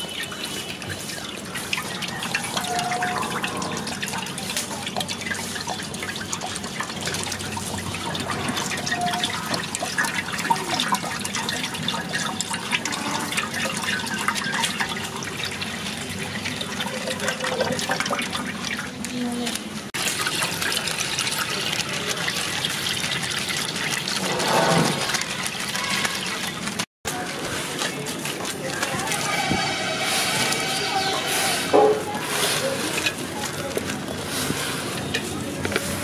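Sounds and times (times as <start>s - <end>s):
liquid pouring and splashing: 0.0s - 36.0s.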